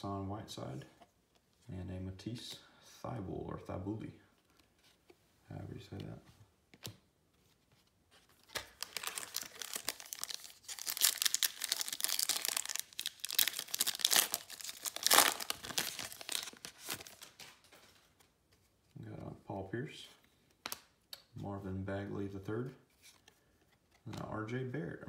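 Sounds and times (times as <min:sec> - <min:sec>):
foil wrapper crinkling and tearing: 0:08.4 - 0:17.5.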